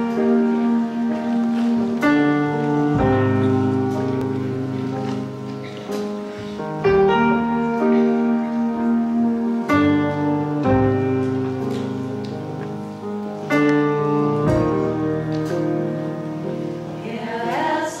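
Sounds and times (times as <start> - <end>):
piano chords: 0.0 - 18.0.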